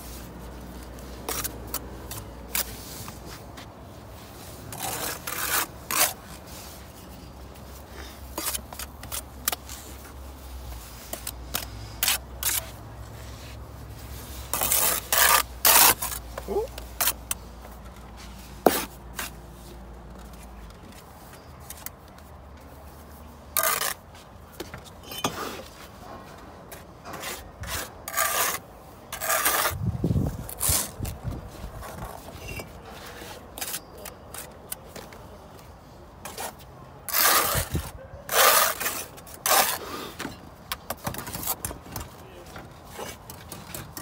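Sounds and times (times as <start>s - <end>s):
trowel scraping brick and mortar: 0.0s - 3.5s, 4.2s - 17.6s, 23.5s - 24.1s, 26.8s - 34.9s, 36.2s - 41.7s.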